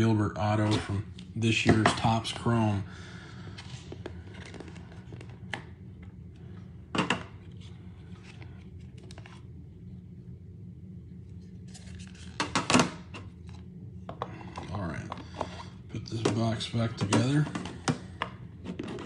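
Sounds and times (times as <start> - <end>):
steady low hum: 0.0 - 19.0
cards scraping and tapping: 3.6 - 5.7.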